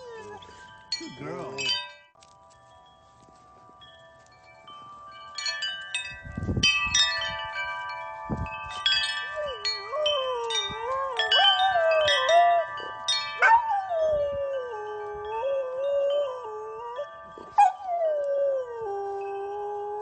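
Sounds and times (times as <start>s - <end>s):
metal wind chimes ringing: 0.0s - 20.0s
dog howling: 9.4s - 20.0s.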